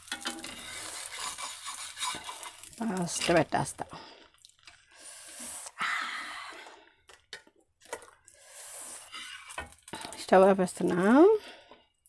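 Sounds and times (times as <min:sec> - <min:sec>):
metal spatula scraping a pan: 0:00.0 - 0:03.6, 0:08.8 - 0:10.5.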